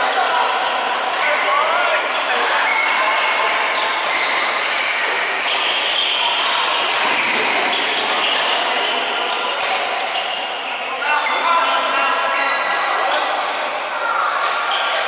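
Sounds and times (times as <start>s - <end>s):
shoes squeaking on court: 2.2s - 12.5s
rackets striking shuttlecocks: 4.0s - 10.2s.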